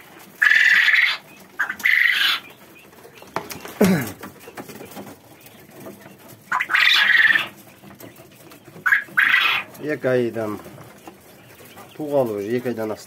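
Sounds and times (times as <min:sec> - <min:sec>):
quail rasping calls: 0:00.0 - 0:12.7.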